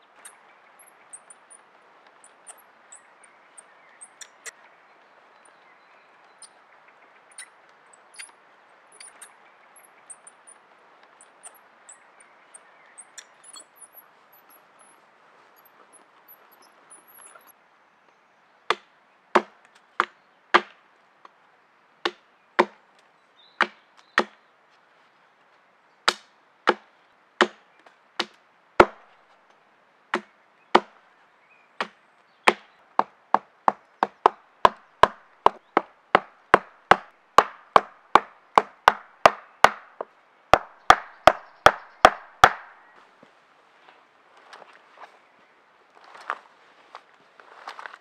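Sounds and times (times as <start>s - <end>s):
hatchet chopping wooden log: 18.7s - 20.8s, 22.0s - 22.8s, 23.6s - 24.4s, 26.1s - 27.6s, 28.2s - 29.0s, 30.1s - 31.0s, 31.8s - 42.7s.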